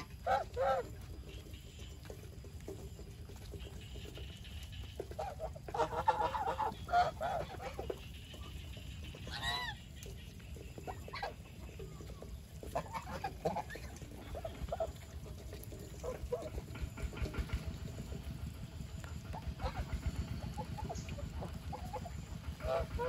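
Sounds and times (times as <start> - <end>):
geese honking: 0.0 - 2.4, 3.4 - 17.3, 19.2 - 23.0.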